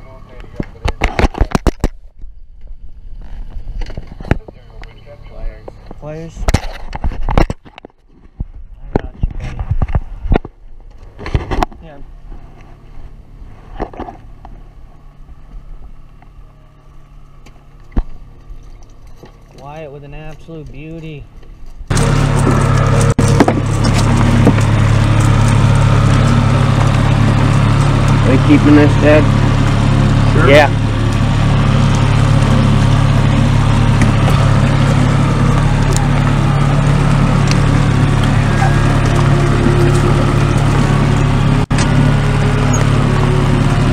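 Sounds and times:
boat motor humming: 0:21.3 - 0:43.9.

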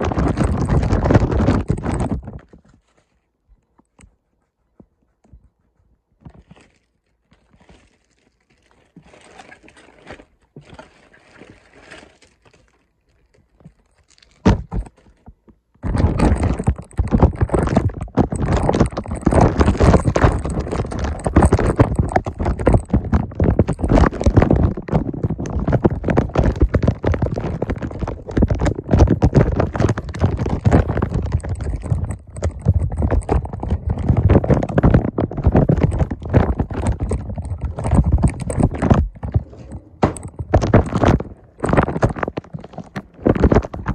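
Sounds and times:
clattering knocks and scrapes: 0:00.0 - 0:03.1, 0:13.6 - 0:43.9
quiet rustling: 0:00.9 - 0:16.0.

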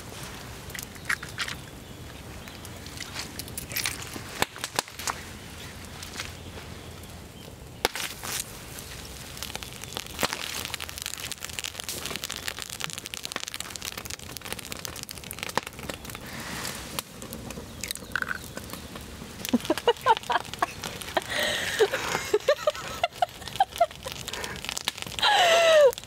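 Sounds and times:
wood fire crackling and popping: 0:00.0 - 0:26.0
egg frying: 0:07.9 - 0:26.0.

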